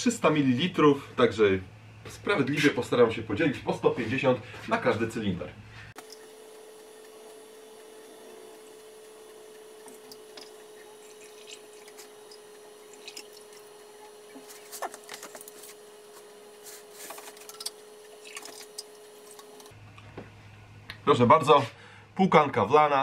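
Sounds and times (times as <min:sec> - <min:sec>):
faint steady hum: 0:00.0 - 0:23.0
liquid trickling and dripping: 0:09.9 - 0:15.5, 0:17.4 - 0:19.7.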